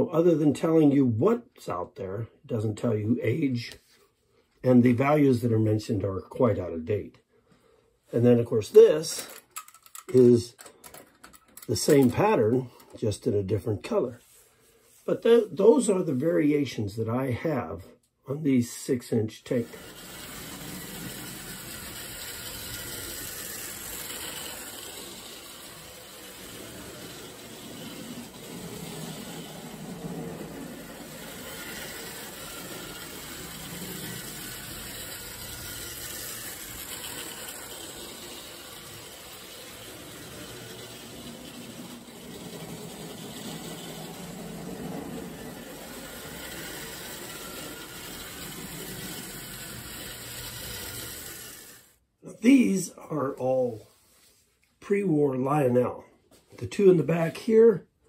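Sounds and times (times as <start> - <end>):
toy train running on metal track: 19.5 - 52.0.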